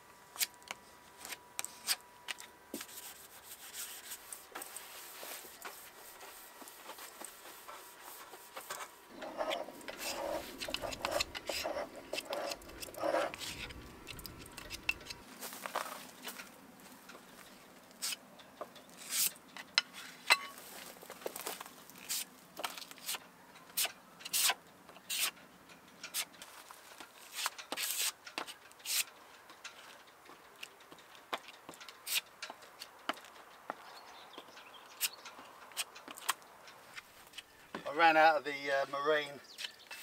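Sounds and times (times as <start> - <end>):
filler scraping on wood: 2.8 - 15.2.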